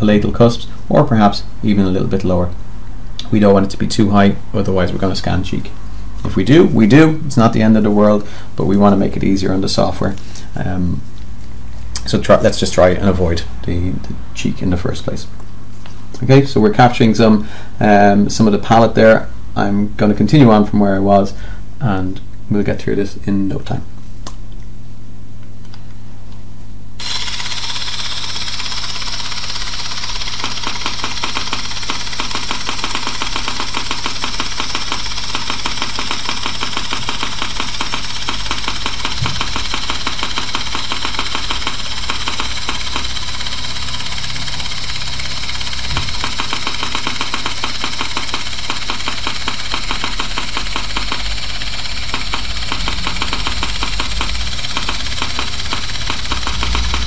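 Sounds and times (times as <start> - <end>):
steady low hum: 26.8 - 57.0
rapid software clicking: 27.0 - 57.0.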